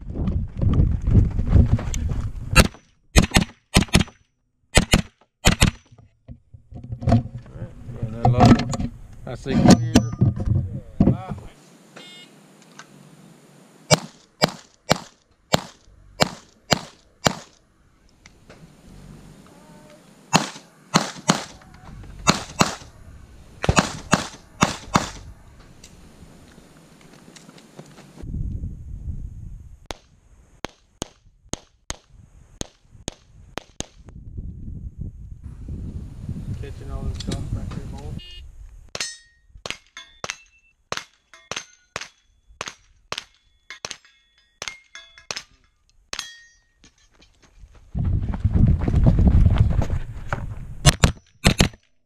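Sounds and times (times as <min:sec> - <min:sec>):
gunshots in quick pairs: 0:02.6 - 0:04.1, 0:04.8 - 0:05.8, 0:13.9 - 0:17.6, 0:20.3 - 0:21.6, 0:22.2 - 0:22.9, 0:23.6 - 0:25.2
pistol shots: 0:02.6 - 0:04.1, 0:13.9 - 0:17.6, 0:20.3 - 0:21.6, 0:22.2 - 0:22.9, 0:23.6 - 0:25.2
metallic ring of steel targets: 0:09.5 - 0:10.4, 0:39.0 - 0:47.2.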